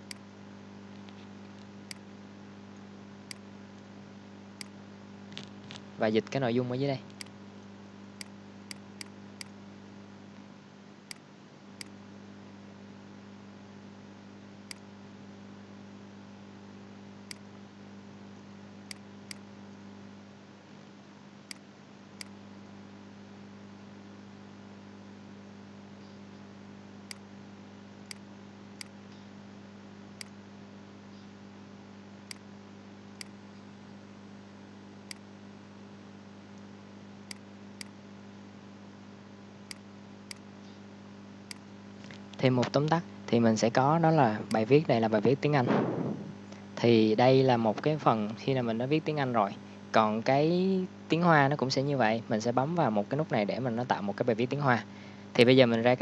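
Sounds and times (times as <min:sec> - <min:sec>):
steady electrical hum: 0:00.0 - 0:56.0
computer mouse clicks: 0:11.1 - 0:12.0, 0:14.7 - 0:14.9, 0:18.9 - 0:19.5, 0:28.0 - 0:29.3, 0:30.2 - 0:30.4, 0:35.1 - 0:35.3, 0:37.3 - 0:38.0, 0:39.7 - 0:40.8.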